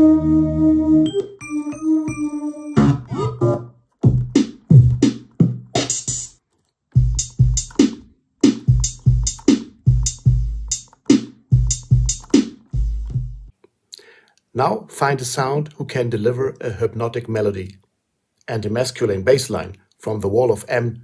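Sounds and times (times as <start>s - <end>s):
drum machine beat: 2.0s - 6.4s, 7.0s - 13.5s.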